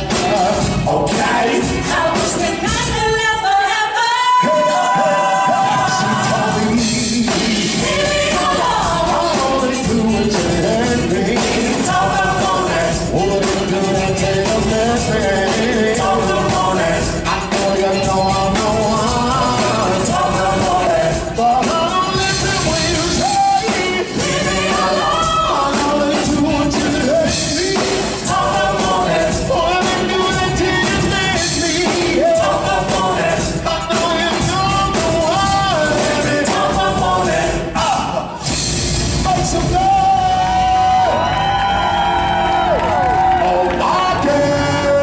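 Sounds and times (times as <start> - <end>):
loud live backing music: 0.0 - 45.0
person singing: 42.1 - 45.0.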